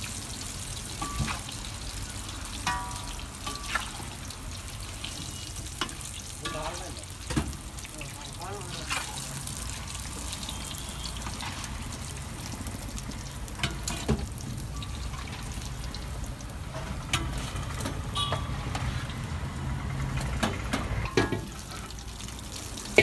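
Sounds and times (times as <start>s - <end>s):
food deep-frying in oil: 0.0s - 23.0s
metal skimmer clinking on pan: 1.0s - 1.5s, 2.6s - 4.0s, 5.8s - 6.8s.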